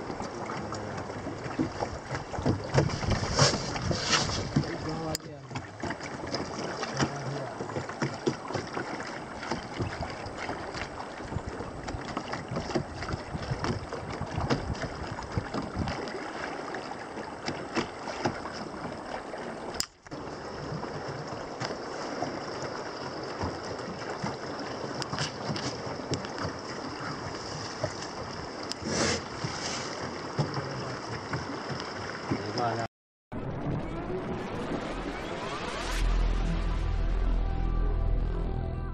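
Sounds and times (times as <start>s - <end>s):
river water rushing and splashing: 0.0s - 32.9s
wind buffeting microphone: 9.8s - 16.2s.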